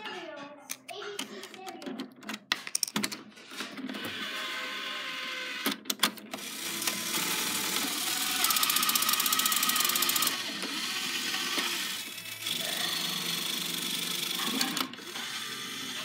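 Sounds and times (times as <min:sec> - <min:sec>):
toy motor and gears whirring: 0:04.0 - 0:05.7, 0:06.3 - 0:16.0.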